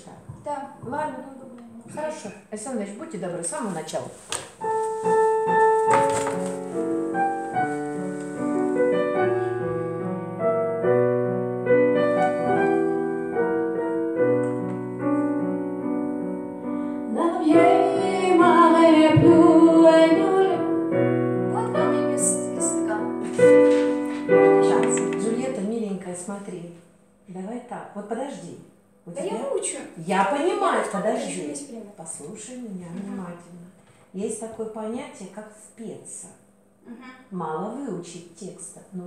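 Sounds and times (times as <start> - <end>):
digital piano chords: 4.6 - 25.8
woman singing with vibrato: 17.1 - 20.8.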